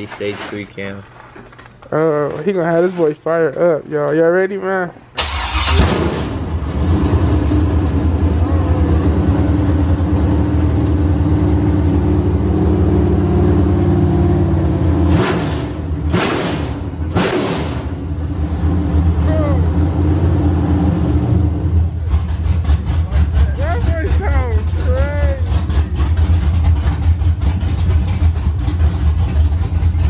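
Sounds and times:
engine revving blips: 5.2 - 28.2
car engine idling loudly: 21.8 - 30.0.

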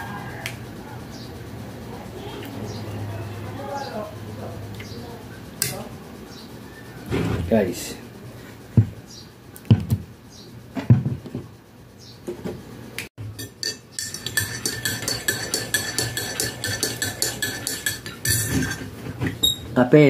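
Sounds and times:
metal spoon clinking in ceramic mug: 13.4 - 18.8.

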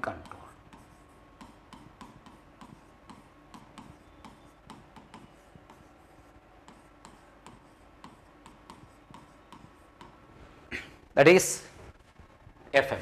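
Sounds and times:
chalk tapping and scratching: 0.0 - 10.4.

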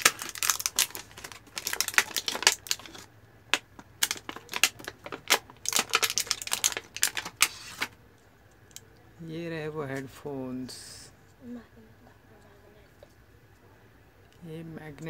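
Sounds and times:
plastic crinkling and crackling: 0.0 - 8.0.

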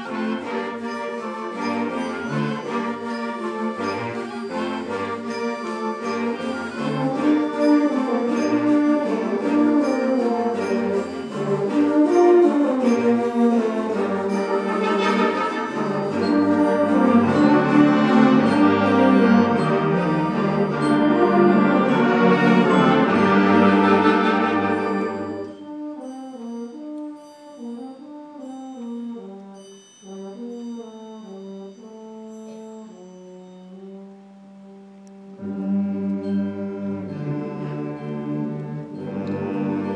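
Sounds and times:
concert band playing: 0.0 - 25.6
percussion strikes: 0.0 - 34.0
soft wind instruments: 0.0 - 39.9.

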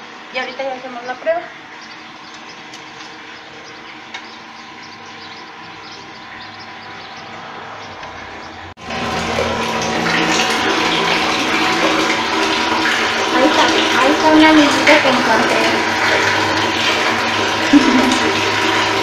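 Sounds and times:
water rushing and splashing: 8.8 - 19.0.

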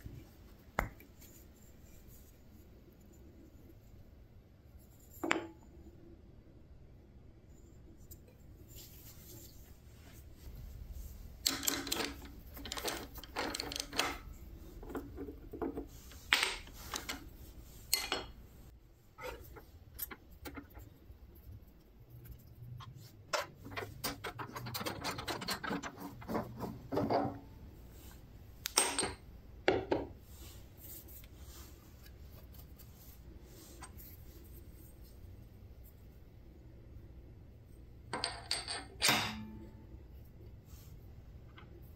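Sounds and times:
metal clinking and scraping: 11.4 - 18.5, 22.8 - 27.4.

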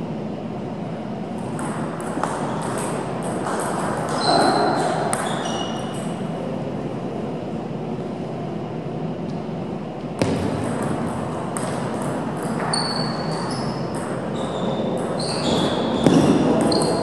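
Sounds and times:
ball bouncing pings: 10.2 - 17.0.

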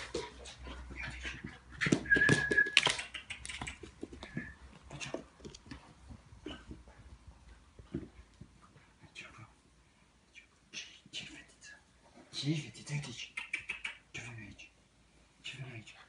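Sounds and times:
paws and toys scrabbling: 0.0 - 8.9.

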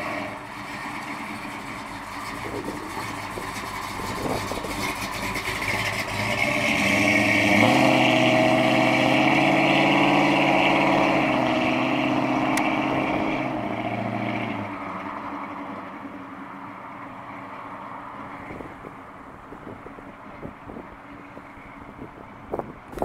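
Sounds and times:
car engine accelerating away: 0.0 - 15.8.

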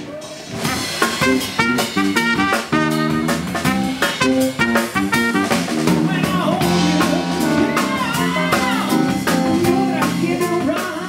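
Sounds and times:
jazz band playing swing: 0.0 - 11.0
trumpet: 0.6 - 9.2.

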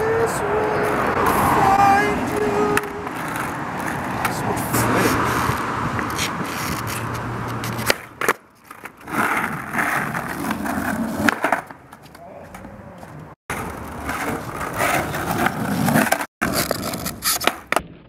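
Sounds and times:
skateboard rolling on asphalt: 0.0 - 18.0
skateboard clack: 2.4 - 4.4, 6.0 - 17.9.

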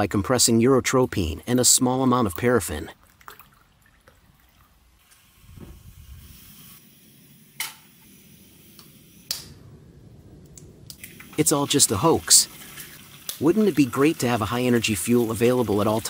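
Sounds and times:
low steady rumble: 8.2 - 11.4.

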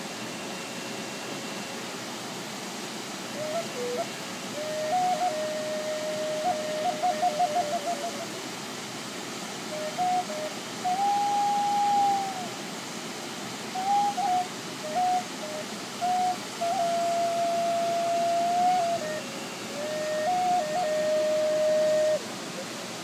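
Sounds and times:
waterfall rushing: 0.0 - 23.0
wooden flute playing slow melody: 3.3 - 8.4, 9.6 - 12.7, 13.6 - 23.0.

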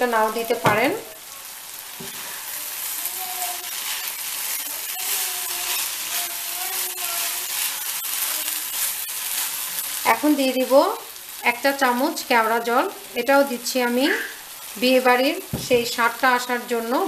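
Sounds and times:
rice sizzling in frying pan: 0.0 - 17.0
spatula scraping pan: 2.0 - 10.3.

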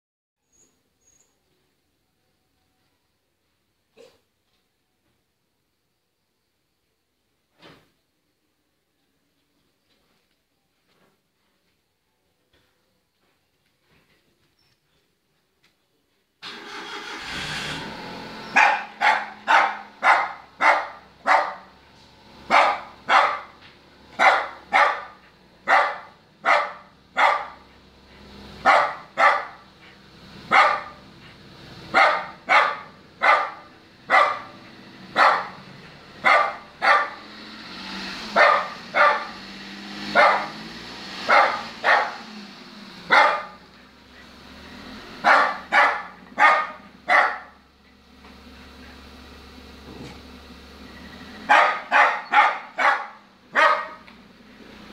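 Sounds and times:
dog barking sharply: 18.5 - 21.8, 22.5 - 23.6, 24.2 - 27.7, 28.6 - 29.7, 30.5 - 31.1, 31.9 - 37.3, 38.3 - 39.4, 40.1 - 40.6, 41.2 - 42.3, 43.1 - 43.6, 45.2 - 47.6, 51.5 - 54.1.

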